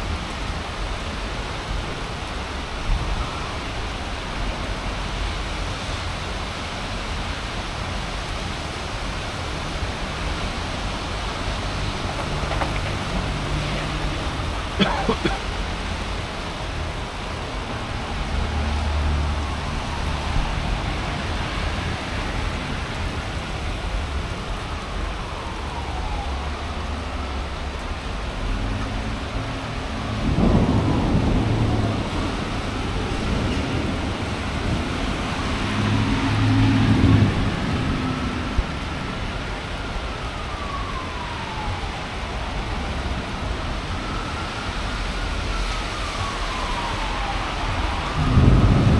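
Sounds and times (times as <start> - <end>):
heavy rain: 0.0 - 48.9
faint siren wailing: 1.9 - 6.1, 7.9 - 48.9
thunder rumbling and cracking: 10.2 - 15.6, 30.0 - 38.8, 46.6 - 48.9.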